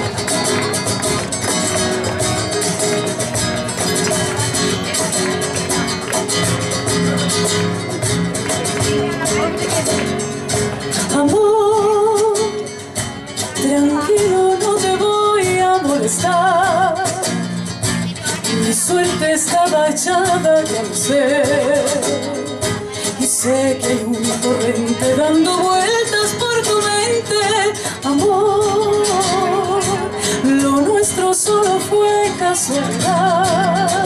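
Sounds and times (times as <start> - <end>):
music accompaniment: 0.0 - 34.0
woman singing a slow ballad: 13.6 - 17.2, 23.2 - 34.0.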